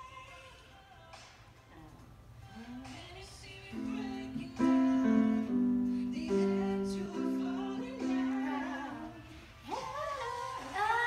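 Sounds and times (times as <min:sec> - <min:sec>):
piano chords: 0:03.6 - 0:09.4.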